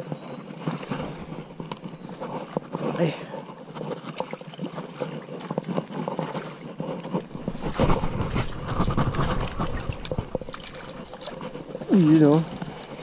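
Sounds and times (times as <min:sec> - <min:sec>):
leaves and twigs crackling: 0:00.0 - 0:13.0
microphone handling rumble: 0:07.2 - 0:13.0.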